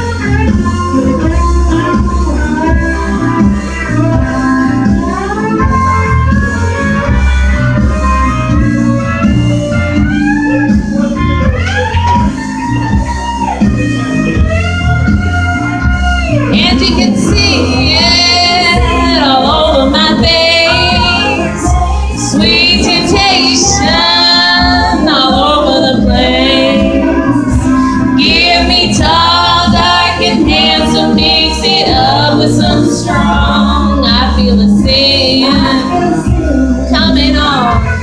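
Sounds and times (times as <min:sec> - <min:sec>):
karaoke backing track with bass: 0:00.0 - 0:38.0
woman singing country song: 0:16.4 - 0:38.0.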